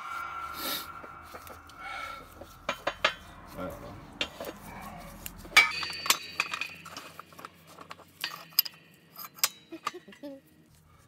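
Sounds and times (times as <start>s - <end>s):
loud ringing metal clank: 0.0s - 4.7s, 5.5s - 7.6s
metal-on-metal clinks: 4.2s - 10.4s.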